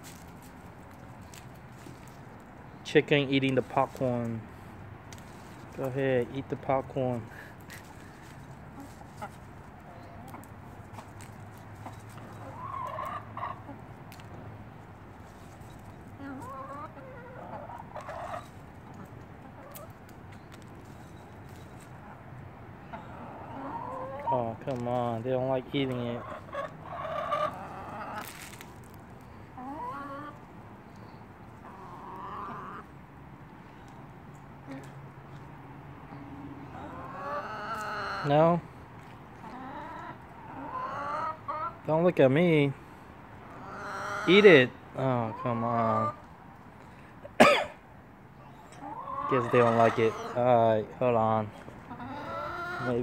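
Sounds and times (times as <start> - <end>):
hens pecking on paving stones: 0.0 - 35.7, 36.7 - 42.7, 48.8 - 53.0
hens clucking: 5.1 - 14.4, 15.2 - 33.0, 36.6 - 42.1, 43.4 - 47.0, 48.4 - 53.0.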